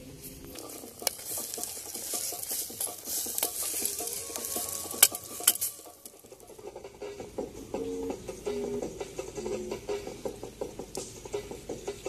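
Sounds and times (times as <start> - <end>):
food sizzling: 0.5 - 6.5.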